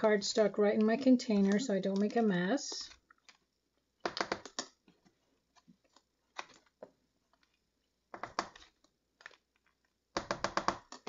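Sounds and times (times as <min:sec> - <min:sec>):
powder sprinkling ticks: 0:00.0 - 0:04.8.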